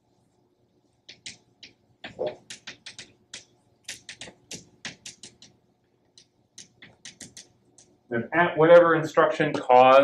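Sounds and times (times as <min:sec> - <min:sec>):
chalk scratching on blackboard: 0:03.9 - 0:05.5.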